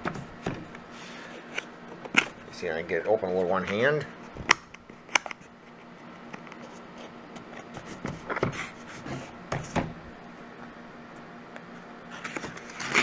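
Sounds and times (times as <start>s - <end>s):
cardboard scraping and rubbing: 6.6s - 9.9s, 12.1s - 13.0s.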